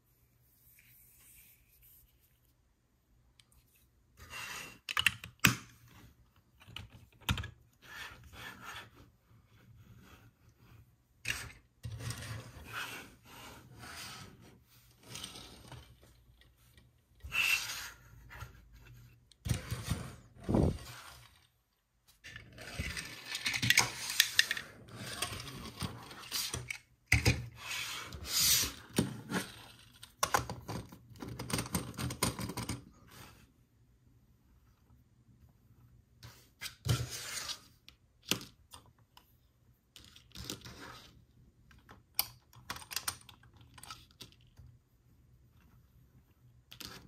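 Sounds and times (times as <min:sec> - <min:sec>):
toy packaging rubbing and scraping: 0:11.8 - 0:16.2, 0:17.2 - 0:18.8, 0:19.5 - 0:21.5, 0:22.2 - 0:26.9, 0:27.5 - 0:30.0.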